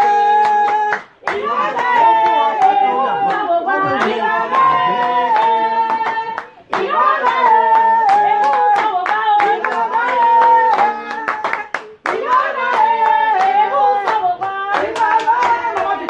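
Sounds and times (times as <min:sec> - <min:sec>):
hand clapping: 0:00.0 - 0:16.0
people singing together: 0:00.0 - 0:16.0.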